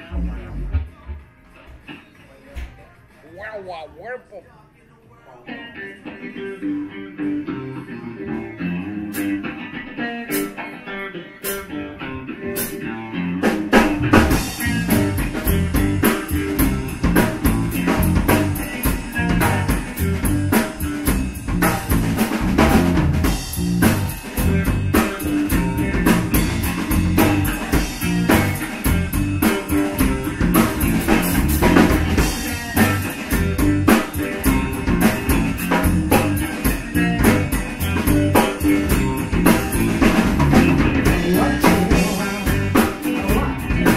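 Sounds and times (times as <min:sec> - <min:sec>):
blues rock band playing: 0:05.5 - 0:43.9
electric guitar playing lightly: 0:05.5 - 0:43.9.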